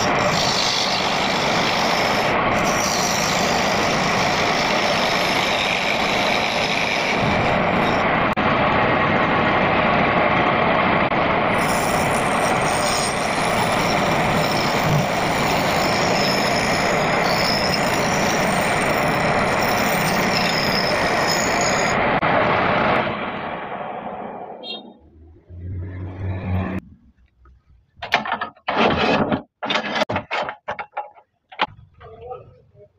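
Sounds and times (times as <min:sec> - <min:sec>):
wood lathe motor running: 0:00.0 - 0:08.0.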